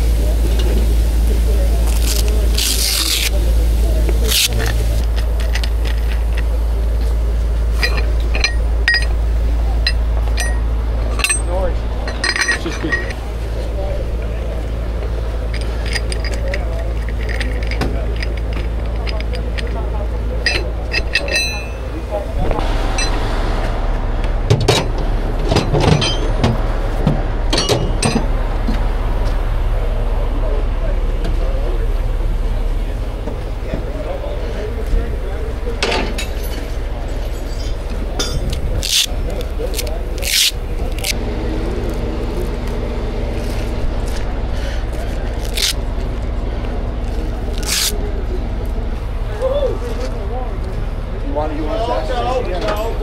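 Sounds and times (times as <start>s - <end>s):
truck engine idling: 0.0s - 53.0s
strap scraping on asphalt: 1.7s - 9.2s, 36.2s - 41.2s, 43.3s - 48.1s
metallic clanks and knocks: 7.8s - 9.2s, 9.8s - 13.2s, 15.5s - 28.8s.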